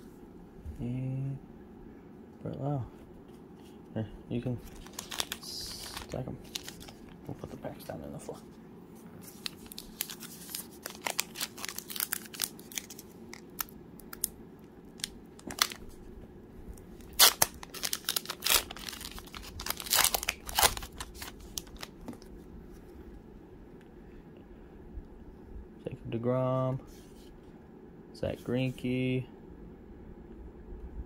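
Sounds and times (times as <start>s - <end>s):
wrapper tearing and crinkling: 4.6s - 7.2s, 9.2s - 16.0s, 17.0s - 22.2s.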